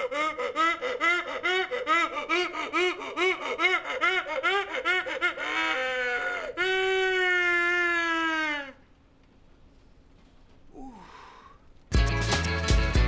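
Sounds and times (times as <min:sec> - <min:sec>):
woman laughing loudly: 0:00.0 - 0:06.7.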